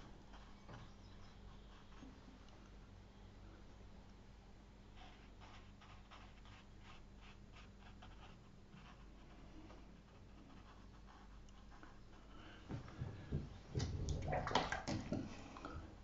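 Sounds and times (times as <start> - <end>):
paintbrush scratching on paper: 0.0 - 2.5, 4.9 - 12.6
low steady hum: 0.0 - 16.0.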